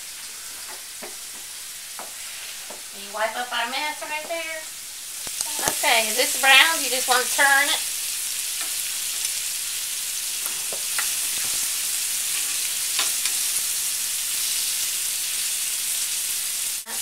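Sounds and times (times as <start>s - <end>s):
meat sizzling in oil: 0.0s - 17.0s.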